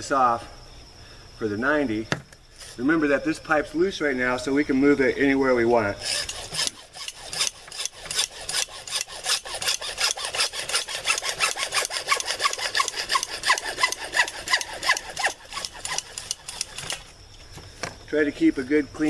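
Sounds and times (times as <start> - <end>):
saw strokes squeaking: 5.8 - 17.1
hand saw cutting plastic pipe: 6.0 - 17.0.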